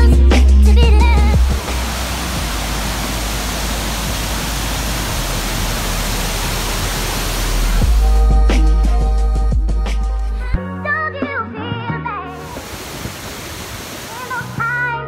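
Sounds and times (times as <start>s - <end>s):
music: 0.0s - 3.3s, 5.2s - 12.7s, 14.1s - 15.0s
waterfall rushing: 1.3s - 8.2s, 12.4s - 14.7s.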